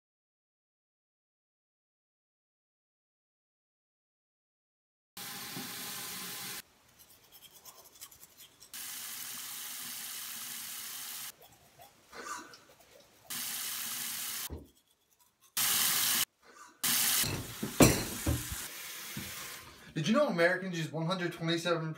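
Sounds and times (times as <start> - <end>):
faucet running into sink: 5.2 - 6.6
toothbrush scrubbing: 6.6 - 9.4, 11.2 - 15.8.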